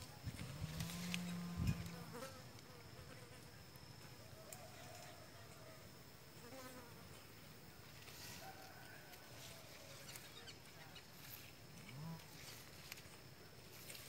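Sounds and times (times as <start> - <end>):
insect buzzing: 0.0 - 14.0
faint chirps: 7.2 - 13.2.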